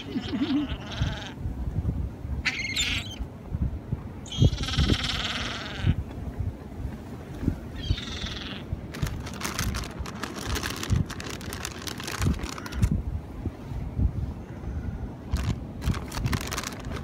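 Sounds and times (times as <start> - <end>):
wind on microphone: 0.0 - 17.0
gulls calling: 7.7 - 8.8
crackling rustling clicks: 8.9 - 13.0, 15.3 - 17.0.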